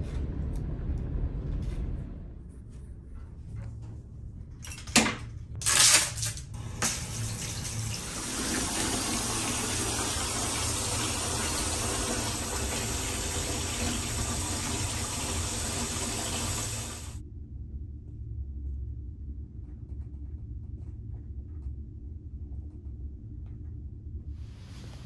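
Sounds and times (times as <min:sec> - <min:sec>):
low steady hum: 0:00.0 - 0:25.0
water running from tap into tub: 0:06.6 - 0:17.2.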